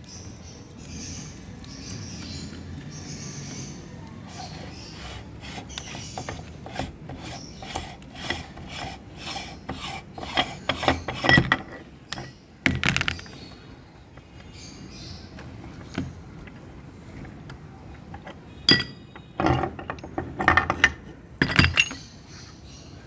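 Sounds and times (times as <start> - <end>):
threaded metal ring rasping: 4.3 - 12.4.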